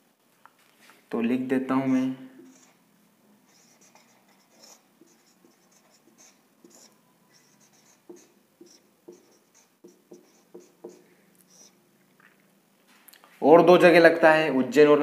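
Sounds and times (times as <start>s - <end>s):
marker pen writing on whiteboard: 1.8s - 11.8s.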